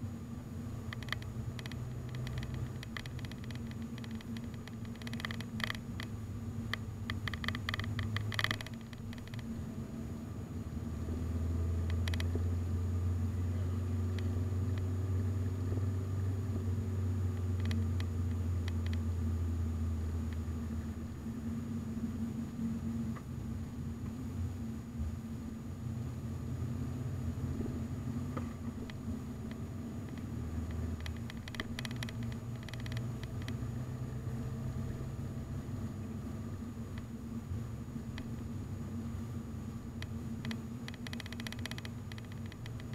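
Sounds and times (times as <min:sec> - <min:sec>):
car engine and road drone: 0:00.0 - 0:42.9
light rattles and clicks: 0:00.8 - 0:09.5, 0:11.8 - 0:12.4, 0:14.0 - 0:14.9, 0:17.3 - 0:19.1, 0:28.3 - 0:33.6, 0:39.9 - 0:42.9.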